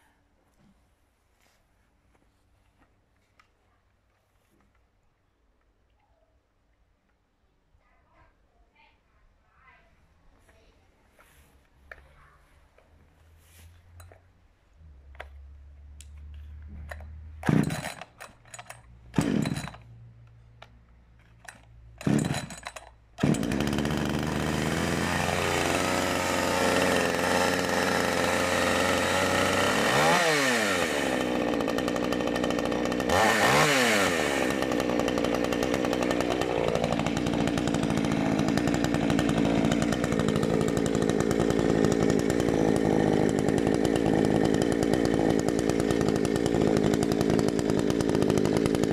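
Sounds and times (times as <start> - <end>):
chainsaw engine running: 16.1 - 20.0, 21.2 - 48.9
starter cord yanks: 16.7 - 19.8.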